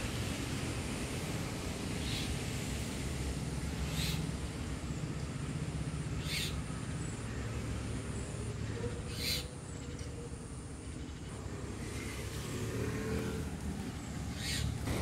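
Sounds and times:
peacock calls: 6.2 - 6.6, 8.4 - 12.3, 14.2 - 15.0.

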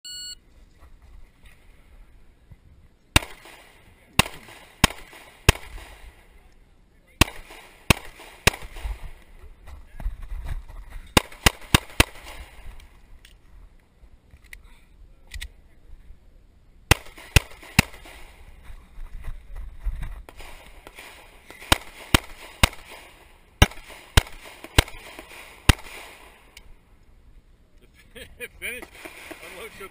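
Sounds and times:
pistol shots: 3.2 - 6.3, 7.2 - 9.2, 11.2 - 12.9, 16.9 - 18.4, 20.3 - 26.6, 28.8 - 29.7.

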